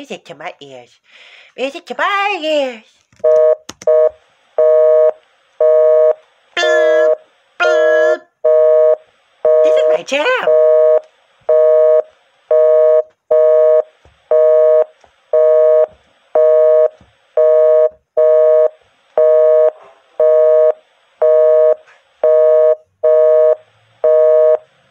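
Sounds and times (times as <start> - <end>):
telephone busy signal: 6.8 - 24.7.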